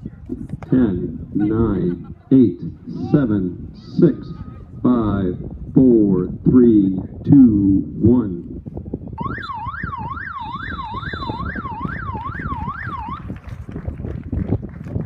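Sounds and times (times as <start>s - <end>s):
wind noise on microphone: 0.0s - 15.0s
warbling electronic siren: 9.2s - 13.3s
high whistle: 10.3s - 11.7s.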